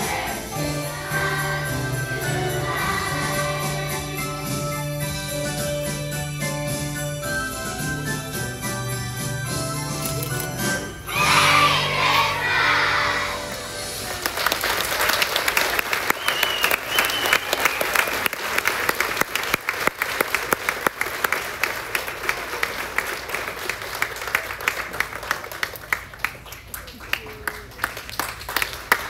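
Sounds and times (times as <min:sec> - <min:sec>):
children's choir singing: 0:00.0 - 0:05.2, 0:11.0 - 0:14.2
backing music: 0:00.0 - 0:14.5
audience applauding: 0:13.8 - 0:29.0.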